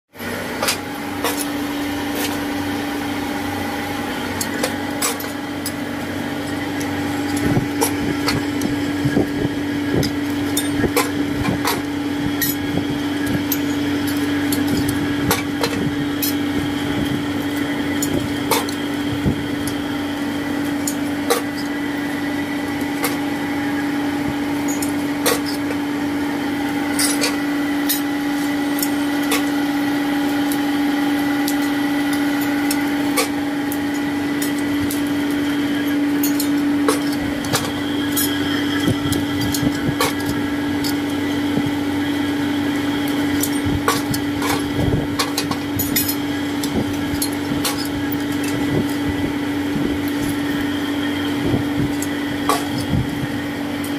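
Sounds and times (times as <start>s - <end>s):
electric forge blower humming: 0.1s - 53.9s
hammer and tongs clinking on iron: 4.4s - 5.8s, 10.0s - 16.5s, 24.6s - 25.8s, 26.6s - 29.6s, 30.5s - 41.1s, 43.0s - 49.1s.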